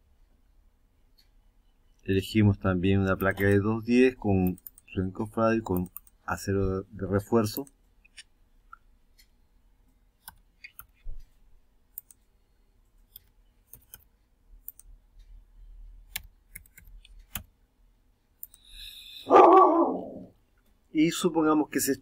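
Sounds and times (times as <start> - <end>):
computer mouse clicks: 3.1 - 3.6, 4.4 - 5.0, 5.7 - 6.2, 10.2 - 12.3, 13.0 - 15.3, 16.0 - 17.6, 18.4 - 18.8
keyboard keystrokes: 16.1 - 17.5
dog bark: 19.3 - 20.1.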